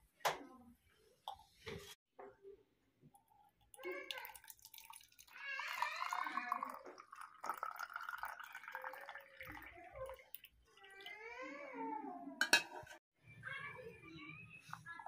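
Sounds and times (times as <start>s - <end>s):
liquid pouring into plastic bottle: 3.6s - 11.2s.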